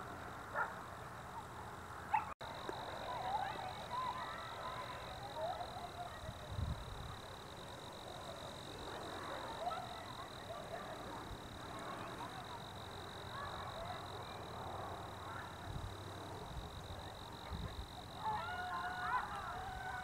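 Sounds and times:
distant children shouting: 0.0 - 20.0
steady high whine: 2.4 - 18.2.

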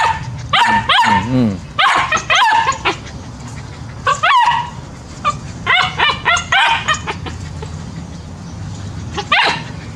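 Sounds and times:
puppy short barks: 0.0 - 2.8
puppies yapping and yelping: 0.0 - 9.9.

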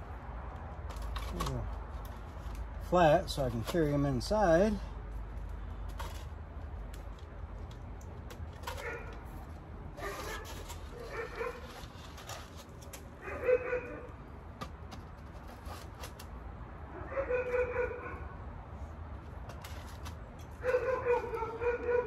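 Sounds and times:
plastic pots clicking and knocking: 0.6 - 4.0.

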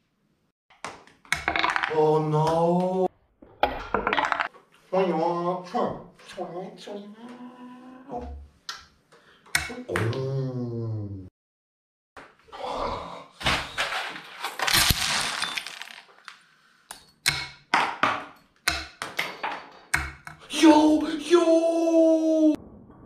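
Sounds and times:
plastic pins clattering on table: 13.9 - 16.4
man exclaiming: 20.5 - 22.6.

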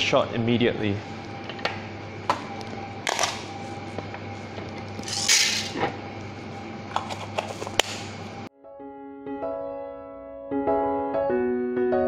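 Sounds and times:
steady low hum: 0.0 - 8.5.

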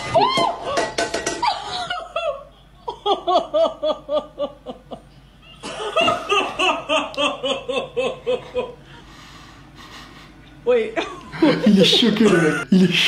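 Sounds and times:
person laughing: 1.4 - 8.8, 11.0 - 12.7.

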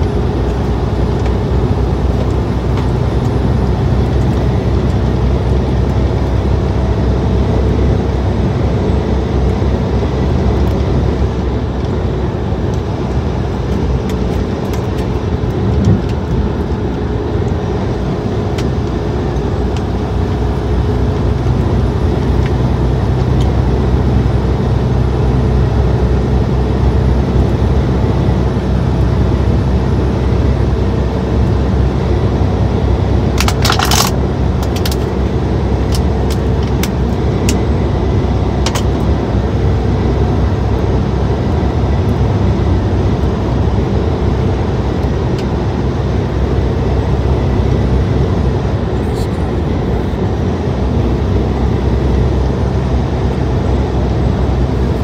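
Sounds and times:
truck engine and road rumble: 0.0 - 55.0.

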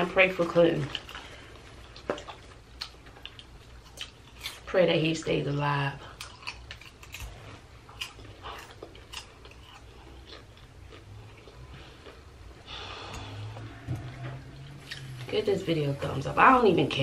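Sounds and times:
popcorn being chewed: 0.5 - 4.7, 6.0 - 15.5
low hum: 7.0 - 17.0.

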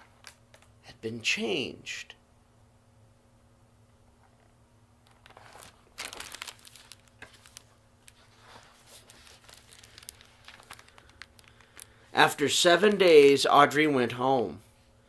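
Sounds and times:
book pages turning: 5.1 - 11.9.

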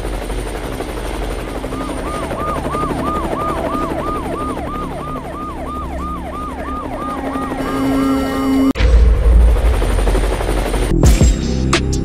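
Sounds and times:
steady droning tone: 1.4 - 10.4
siren yelping: 1.5 - 8.8.

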